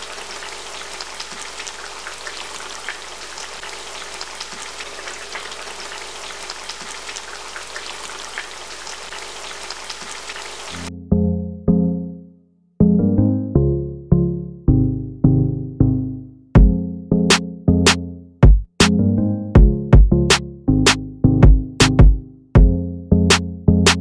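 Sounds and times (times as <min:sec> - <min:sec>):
stew sauce crackling and popping: 0:00.0 - 0:10.9
keyboard tune: 0:10.9 - 0:18.2.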